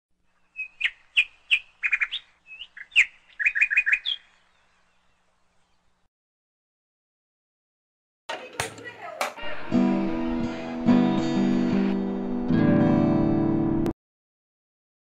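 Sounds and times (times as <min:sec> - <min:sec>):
small bird chirping: 0:00.3 - 0:06.1.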